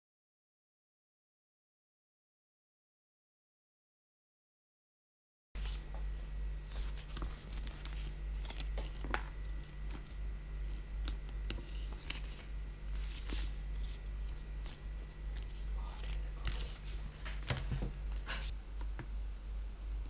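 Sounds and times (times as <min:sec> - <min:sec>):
vinyl sheet rustling: 0:05.6 - 0:18.6
steady low hum: 0:05.6 - 0:20.0.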